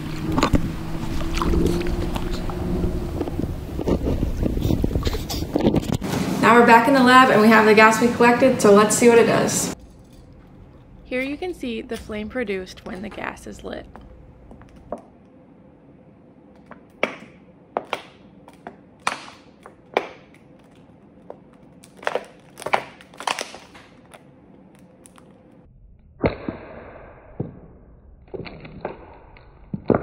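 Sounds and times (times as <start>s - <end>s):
plastic bottle crackling: 19.0s - 25.6s.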